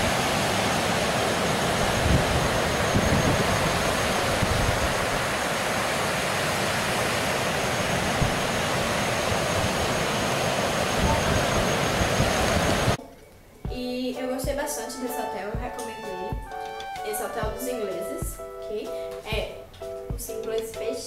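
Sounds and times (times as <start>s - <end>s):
wind buffeting microphone: 0.0s - 5.6s, 7.5s - 13.0s.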